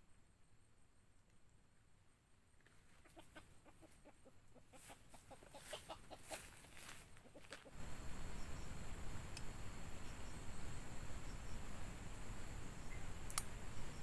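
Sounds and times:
rooster clucking: 0:02.9 - 0:07.8
steady hiss: 0:04.7 - 0:14.0.

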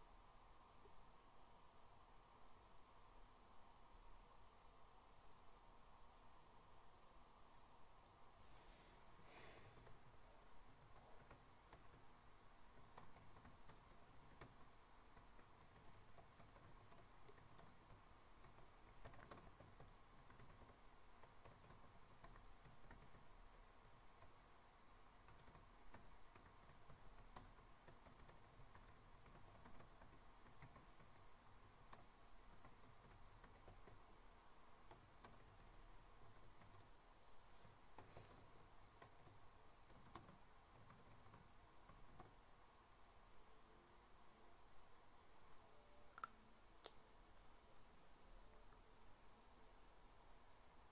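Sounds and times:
faint steady hum: 0:00.0 - 0:50.9
computer keyboard clicks: 0:12.8 - 0:14.6, 0:15.2 - 0:23.6, 0:25.3 - 0:31.2, 0:34.9 - 0:36.9, 0:39.0 - 0:42.4.

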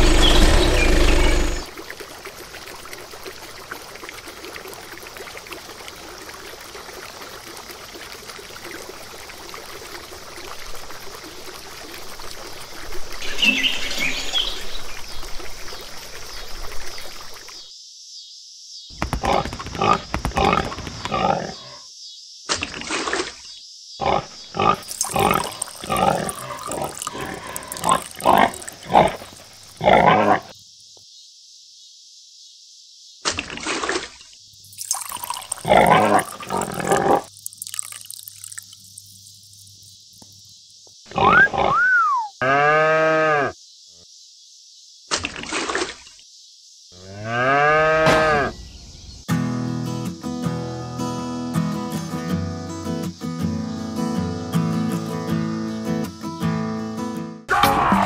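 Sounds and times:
pigs grunting and oinking: 0:00.0 - 0:01.7, 0:19.2 - 0:21.8, 0:24.0 - 0:30.5, 0:35.6 - 0:37.3, 0:41.1 - 0:43.6
whistle gliding up and down: 0:41.3 - 0:42.4.

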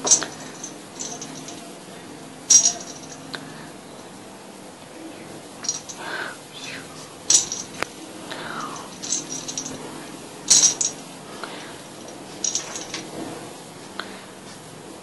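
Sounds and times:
light metallic jingling: 0:00.0 - 0:01.7, 0:02.5 - 0:03.3, 0:05.6 - 0:06.1, 0:07.3 - 0:07.9, 0:08.6 - 0:11.1, 0:11.9 - 0:13.1.

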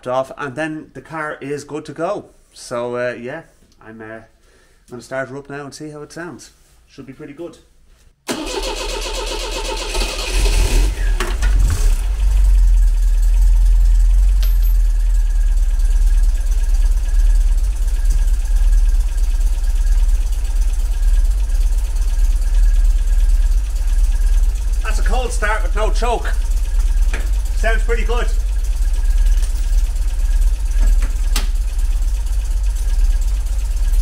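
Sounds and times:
engine cranking and starting: 0:08.3 - 0:34.0.

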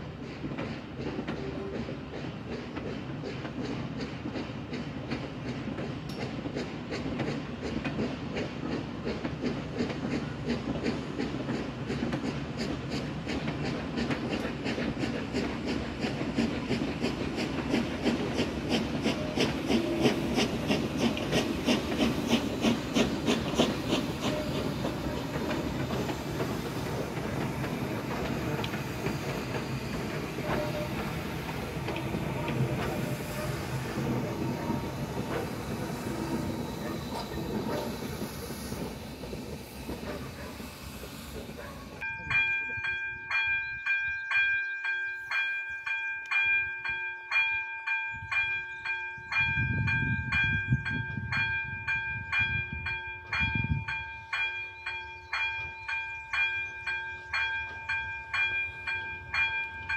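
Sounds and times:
steam hissing: 0:00.0 - 0:42.0
train coaches rumbling and clattering: 0:00.0 - 0:59.9
steam locomotive whistle: 0:01.3 - 0:02.0, 0:23.9 - 0:27.0, 0:27.6 - 0:38.9.

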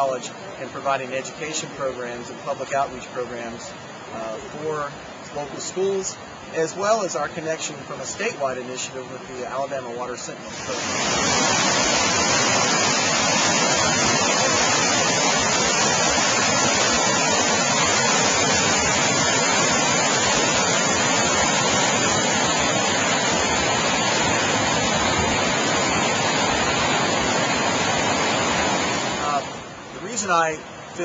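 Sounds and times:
creek water rushing over rocks: 0:00.0 - 0:31.0.

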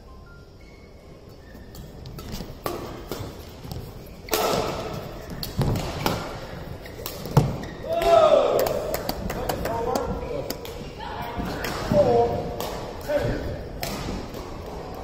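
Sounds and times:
shoe squeaks: 0:00.3 - 0:04.3, 0:06.4 - 0:07.9
racket hitting shuttlecock: 0:02.2 - 0:09.4, 0:13.8 - 0:14.6.

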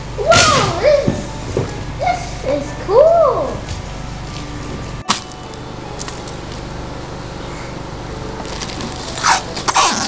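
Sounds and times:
low room hum: 0:00.0 - 0:10.0
foil wrap crinkling: 0:08.4 - 0:10.0.

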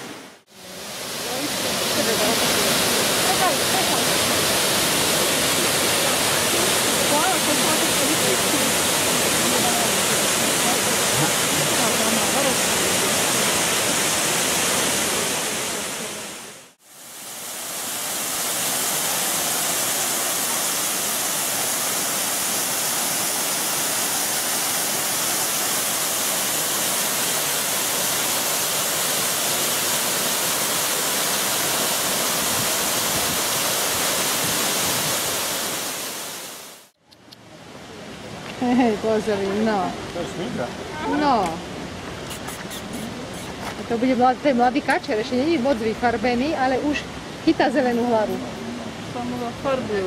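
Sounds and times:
waterfall rushing: 0:00.0 - 0:36.9.

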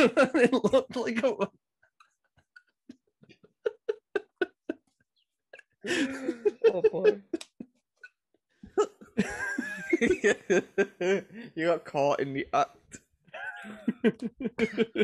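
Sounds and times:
men laughing: 0:00.0 - 0:01.5, 0:02.9 - 0:05.1, 0:05.8 - 0:07.8, 0:08.6 - 0:11.4, 0:13.4 - 0:15.0.

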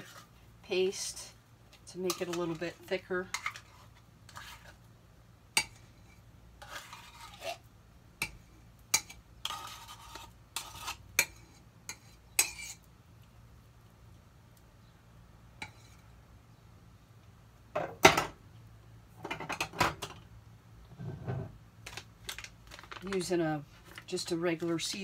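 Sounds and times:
metal spoon scraping can: 0:02.0 - 0:04.8, 0:06.6 - 0:07.6, 0:09.0 - 0:12.8.

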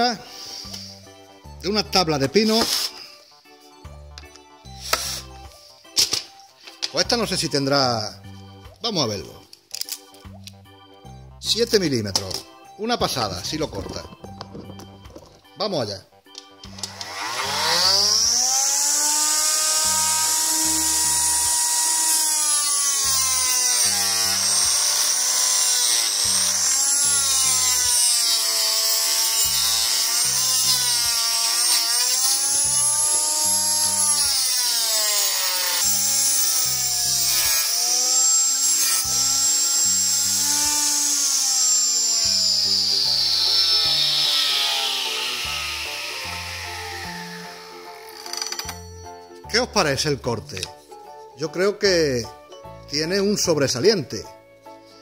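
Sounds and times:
saw blade cutting wood: 0:02.2 - 0:03.2, 0:04.7 - 0:06.3, 0:16.7 - 0:49.1
table saw motor whining: 0:16.4 - 0:49.3.

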